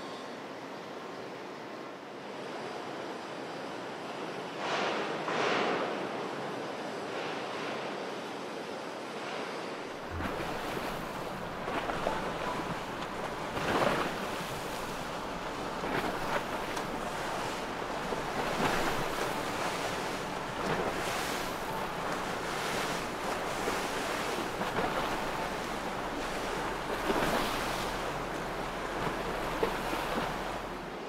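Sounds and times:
waves breaking: 0:09.2 - 0:31.0
wind buffeting microphone: 0:09.9 - 0:30.9.

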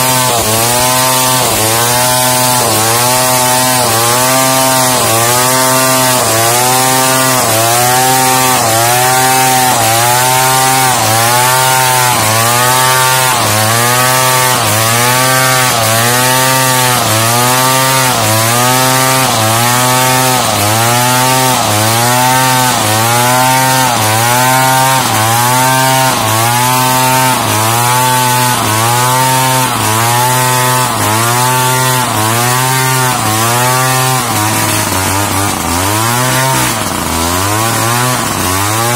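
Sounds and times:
chainsaw cutting log: 0:00.0 - 0:38.9.

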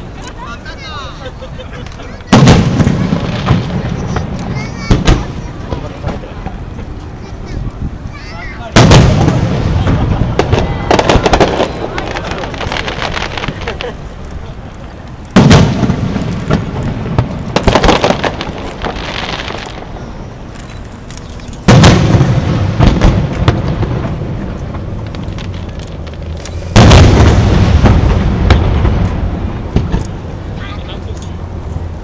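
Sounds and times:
firework booms: 0:02.3 - 0:08.0, 0:08.6 - 0:14.1, 0:15.3 - 0:20.0, 0:21.6 - 0:30.6
crackling pops: 0:08.8 - 0:30.2.

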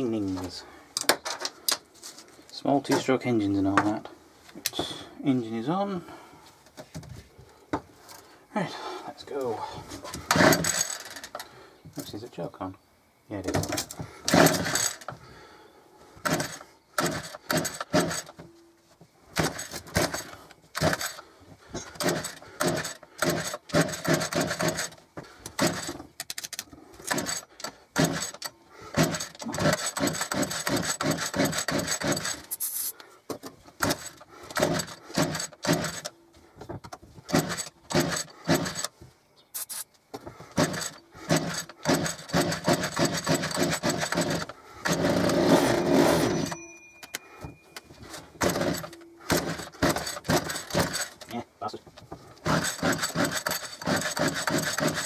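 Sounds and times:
recoil starter rattling and whirring: 0:10.1 - 0:11.6, 0:13.6 - 0:15.4, 0:16.2 - 0:18.4, 0:19.3 - 0:32.6, 0:33.6 - 0:39.0, 0:40.5 - 0:46.6, 0:48.0 - 0:51.4, 0:52.0 - 0:55.0.

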